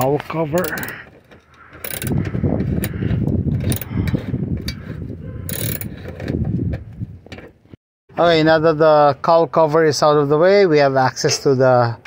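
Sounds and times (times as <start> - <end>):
hand ratchet clicking: 0.6 - 1.0, 1.8 - 3.0, 3.6 - 4.8, 5.5 - 6.1.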